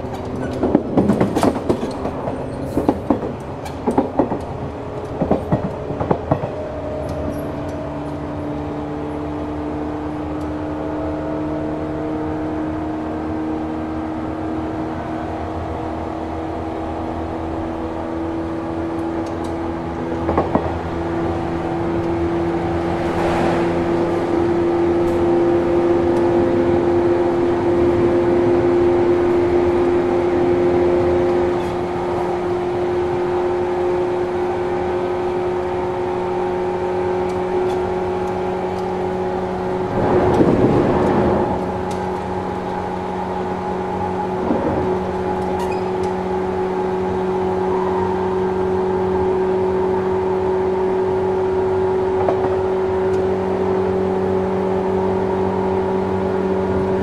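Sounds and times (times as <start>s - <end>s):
train traction motor hum: 0.0s - 57.0s
wheel and rail noise: 0.0s - 57.0s
rush of noise: 22.5s - 25.6s.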